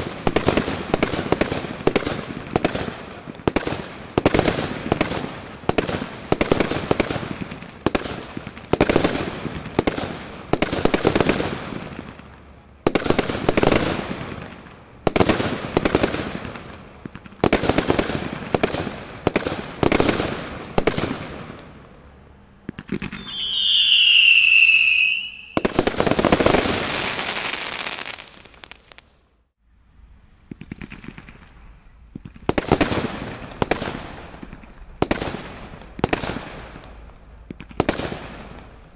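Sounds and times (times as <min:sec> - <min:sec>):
fireworks bangs with crackling: 0:00.0 - 0:21.6, 0:22.7 - 0:29.2, 0:30.5 - 0:38.8
shrill firework whistle: 0:23.0 - 0:25.9.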